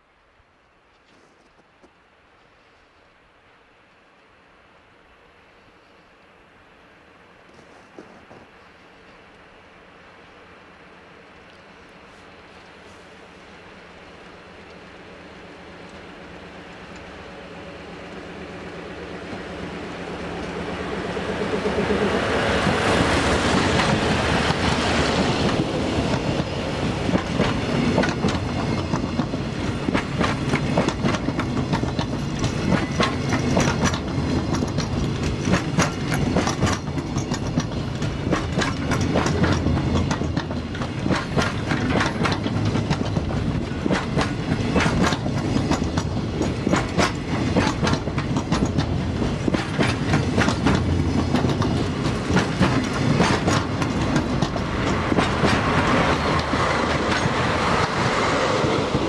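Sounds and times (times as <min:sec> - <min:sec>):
diesel locomotive engine: 0:02.0 - 0:59.0
freight train rumbling past: 0:04.5 - 0:59.0
wheels clacking over rail joints: 0:19.2 - 0:59.0.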